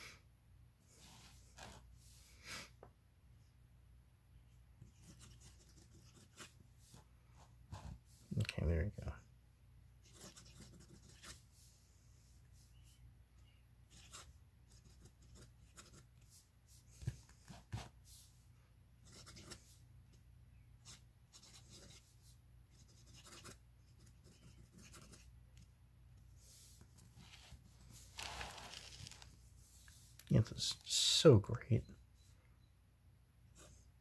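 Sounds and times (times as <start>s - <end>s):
pen nib scratching paper: 4.8s - 6.6s, 10.0s - 11.4s, 22.7s - 25.3s.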